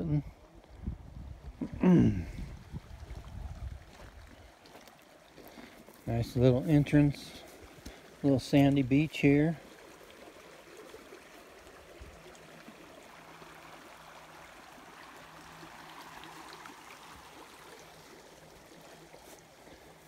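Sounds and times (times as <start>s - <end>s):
creek flowing over gravel: 0.0s - 20.0s.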